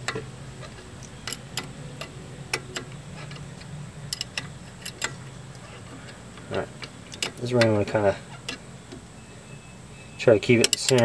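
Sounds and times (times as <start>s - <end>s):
wrench metallic clicks: 0.0s - 5.6s, 6.4s - 7.8s, 10.3s - 11.0s.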